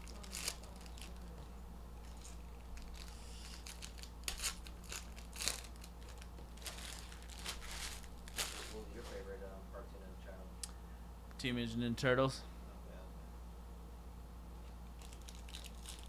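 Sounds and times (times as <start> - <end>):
wrappers crinkling and tearing: 0.0 - 9.0, 15.0 - 16.0.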